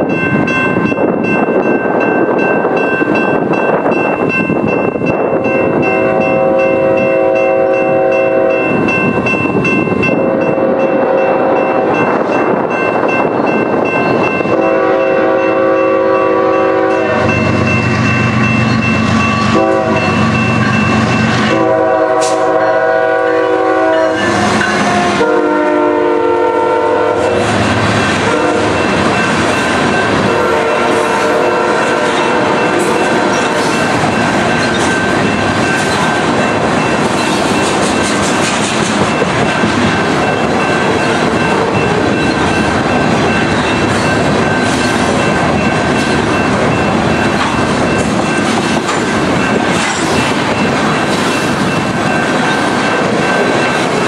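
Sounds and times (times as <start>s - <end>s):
train wheels clattering on rails: 0.0s - 23.0s, 27.0s - 54.0s
train horn blasts: 5.8s - 8.8s, 10.1s - 12.1s, 14.4s - 17.8s, 19.4s - 20.5s, 21.3s - 28.9s, 30.2s - 33.9s.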